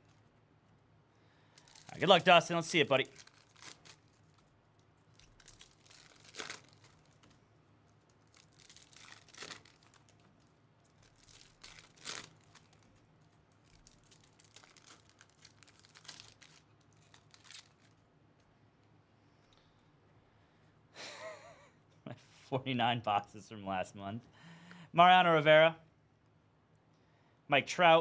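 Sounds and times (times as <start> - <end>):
foil wrappers crinkling and tearing: 1.5 - 18.0.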